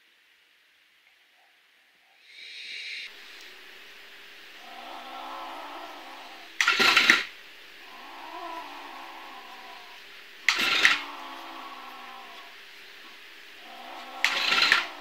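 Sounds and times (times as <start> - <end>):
low drawn-out cat cry: 4.6 - 6.6, 7.8 - 12.7, 13.6 - 15.0
harsh cat yowls from speaker: 7.8 - 12.6, 13.6 - 15.0.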